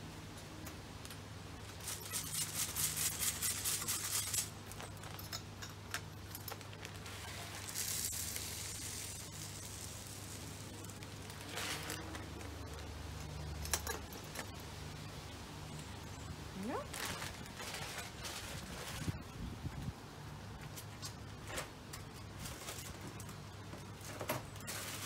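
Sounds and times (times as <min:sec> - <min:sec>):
seed bag rustling: 0:06.7 - 0:12.8, 0:16.6 - 0:19.2, 0:24.7 - 0:25.0
birdseed pouring into plastic feeder: 0:07.1 - 0:10.6.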